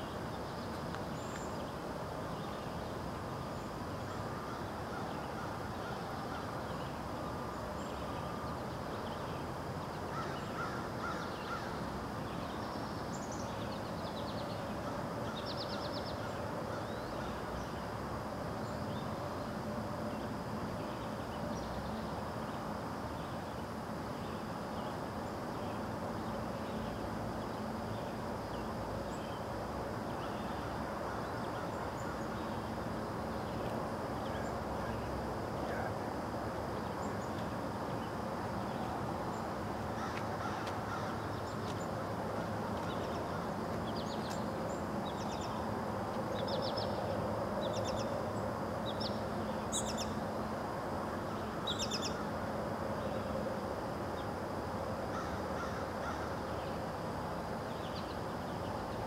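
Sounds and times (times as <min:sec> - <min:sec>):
birds calling: 0:10.1 - 0:11.8, 0:38.6 - 0:45.6.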